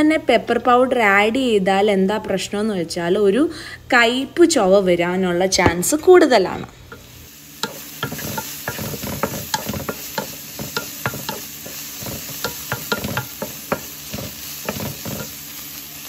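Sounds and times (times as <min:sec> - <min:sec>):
mushrooms sizzling in a pan: 0:06.9 - 0:16.0
wooden spatula scraping a pan: 0:07.6 - 0:15.4.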